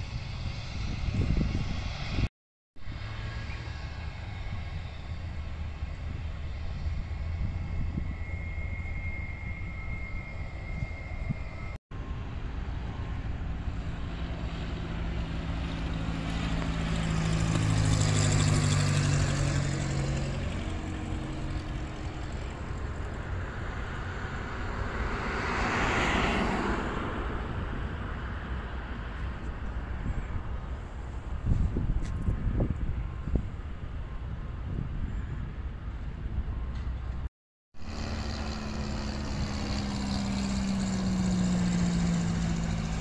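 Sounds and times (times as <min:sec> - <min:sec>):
vehicle engine hum passing: 0:00.0 - 0:33.7, 0:35.8 - 0:43.0
tyre and road noise: 0:00.0 - 0:34.0, 0:35.8 - 0:43.0
outdoor rumble: 0:35.9 - 0:43.0.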